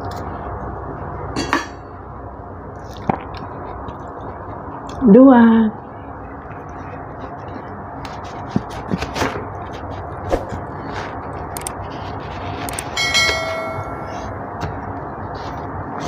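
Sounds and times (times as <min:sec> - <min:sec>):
click and bell-like ding: 0:13.0 - 0:14.3.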